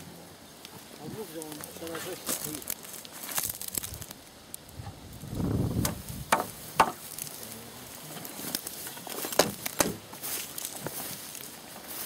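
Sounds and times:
dry brush rustling: 0.0s - 12.0s
wood snapping: 1.4s - 4.8s, 5.8s - 7.4s, 8.2s - 10.8s.

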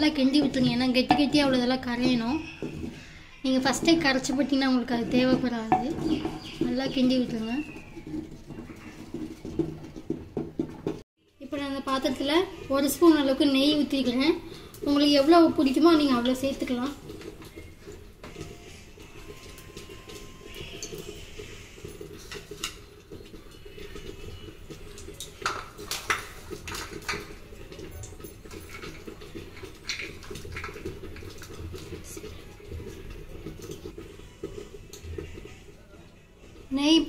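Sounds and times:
ghee popping and crackling: 0.0s - 37.0s.

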